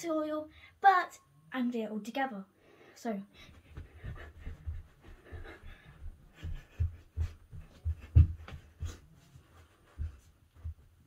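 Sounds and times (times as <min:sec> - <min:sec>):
feet thudding on floor: 0:03.5 - 0:11.0.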